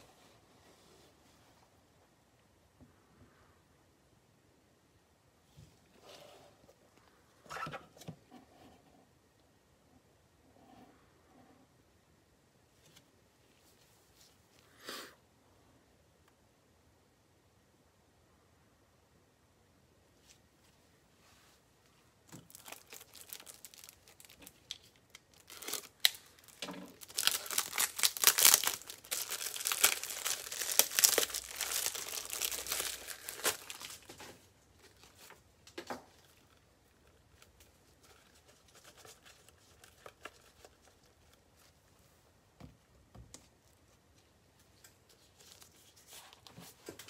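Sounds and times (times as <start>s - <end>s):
plastic wrapping crinkling: 22.2s - 41.8s.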